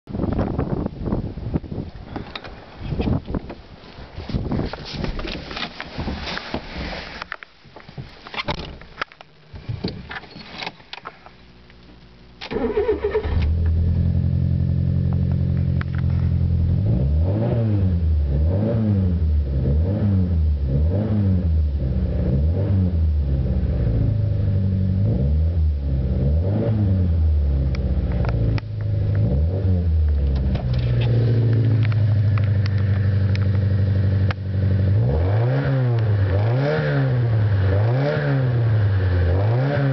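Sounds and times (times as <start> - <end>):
car engine starting: 8.4 - 39.9
engine revving: 16.4 - 39.9.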